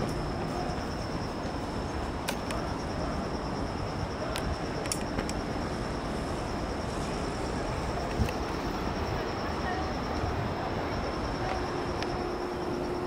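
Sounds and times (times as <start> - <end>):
insects chirring: 0.0 - 13.0
low rumble of city traffic: 0.0 - 13.0
faint clicks: 11.3 - 12.2.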